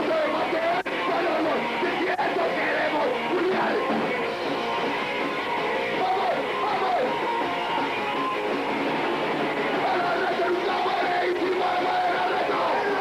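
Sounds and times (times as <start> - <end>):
singer yelling into microphone: 0.0 - 4.1, 6.0 - 7.2, 9.8 - 13.0
fast electric guitar: 0.0 - 13.0.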